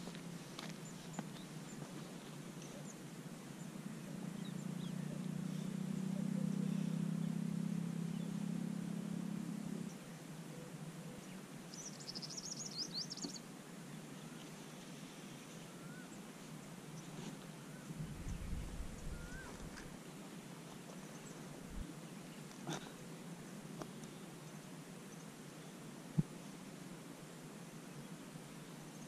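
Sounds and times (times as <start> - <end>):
low steady hum: 0.0 - 29.0
bird chirping: 10.6 - 14.6.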